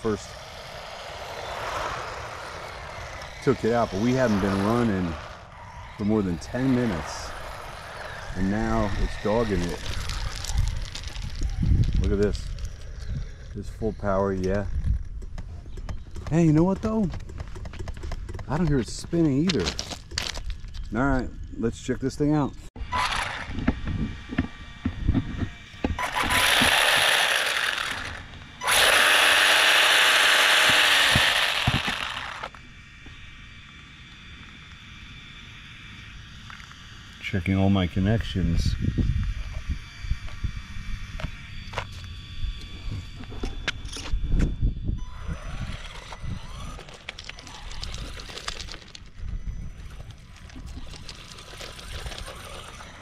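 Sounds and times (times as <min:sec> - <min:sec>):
tyres clicking over gravel: 0:00.0 - 0:13.2, 0:13.8 - 0:21.3, 0:25.9 - 0:32.6, 0:45.4 - 0:53.0
toy car motor whirring: 0:00.0 - 0:15.1, 0:22.8 - 0:32.6, 0:37.7 - 0:53.0.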